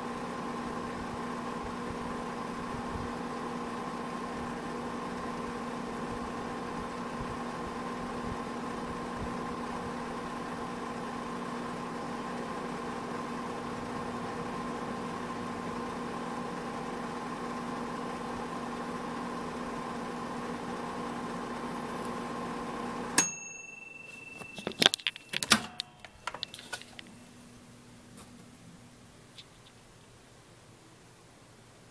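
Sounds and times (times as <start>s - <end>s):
microwave oven humming: 0.0s - 31.9s
bell ding: 23.2s - 26.6s
microwave door clicks: 24.8s - 26.4s.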